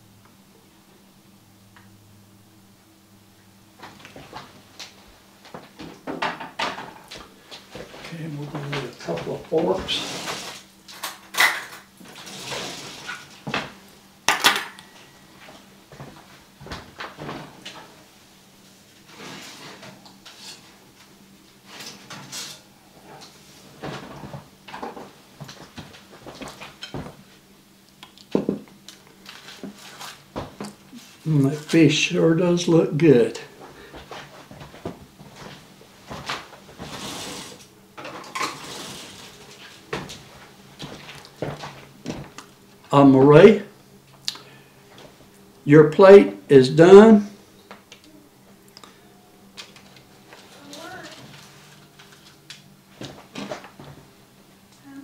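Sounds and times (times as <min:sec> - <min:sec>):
quiet rustling: 0:07.2 - 0:11.0, 0:28.8 - 0:32.4, 0:33.1 - 0:43.5.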